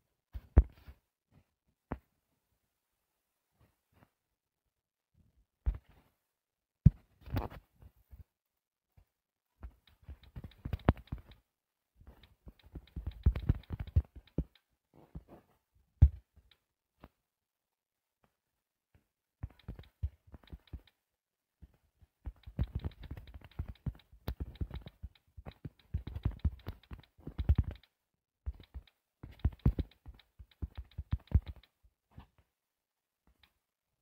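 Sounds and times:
taps on touch screen: 0:12.2 - 0:14.6, 0:22.3 - 0:31.8.

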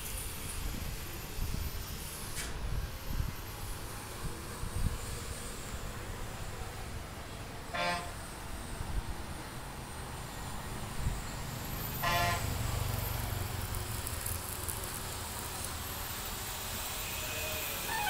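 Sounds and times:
road traffic rumble: 0:00.0 - 0:18.0
vehicle horn toot: 0:07.8 - 0:08.2, 0:12.0 - 0:12.5.

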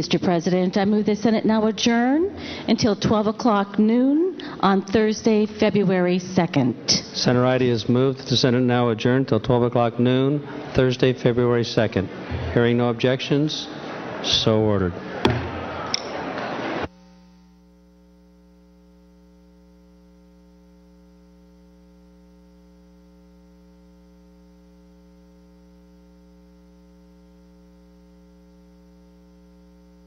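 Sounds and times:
electrical mains hum: 0:00.0 - 0:30.0
gavel knocks: 0:15.2 - 0:15.6.

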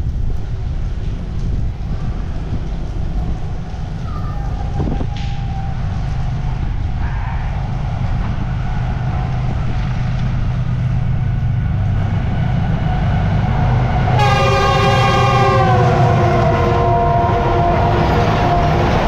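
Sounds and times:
diesel train rumbling: 0:00.0 - 0:19.0
locomotive air horn chord: 0:14.1 - 0:19.0.

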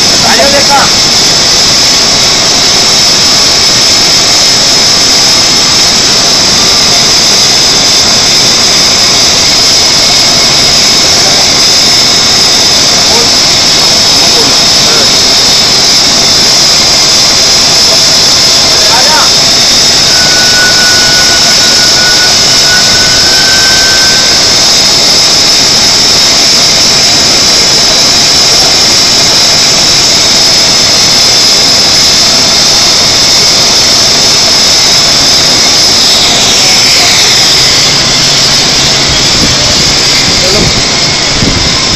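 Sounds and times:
machinery hissing roar: 0:00.0 - 0:41.9
whine sliding down in pitch: 0:14.3 - 0:30.2, 0:33.5 - 0:41.9
thin whistle: 0:19.2 - 0:25.4, 0:35.0 - 0:40.6.

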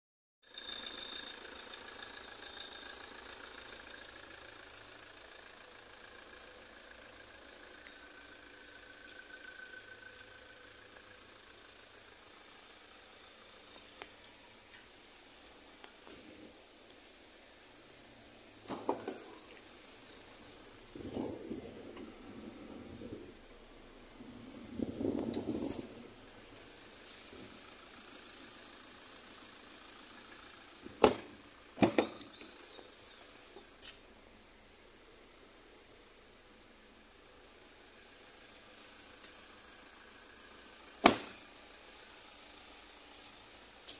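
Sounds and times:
pickup engine idling: 0:00.5 - 0:43.9
steady high-pitched whine: 0:00.5 - 0:43.9
car door latch clicking: 0:31.0 - 0:32.2.

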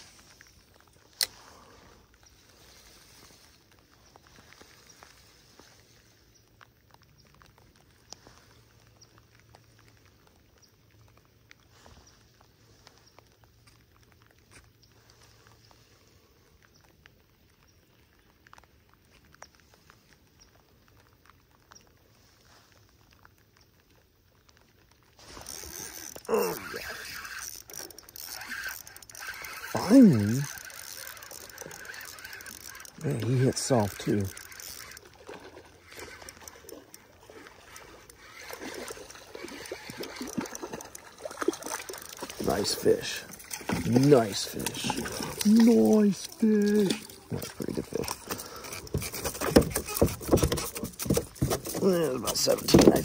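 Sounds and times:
light rain pattering: 0:00.0 - 0:49.5
raindrop ticks: 0:03.3 - 0:48.8
fish splashing at water surface: 0:25.2 - 0:49.8.

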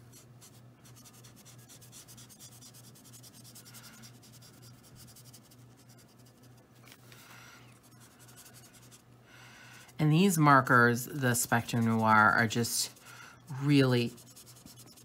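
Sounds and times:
marker scratching on paper: 0:00.0 - 0:06.6, 0:07.8 - 0:09.1, 0:11.5 - 0:15.0
steady low hum: 0:00.0 - 0:15.0.

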